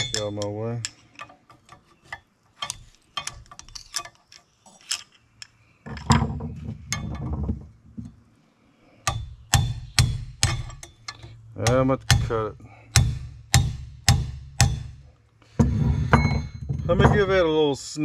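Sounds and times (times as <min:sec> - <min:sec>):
hammer striking chisel on metal: 0:00.0 - 0:01.3, 0:09.0 - 0:15.0
steel tools clinking: 0:00.0 - 0:06.2, 0:10.4 - 0:11.9.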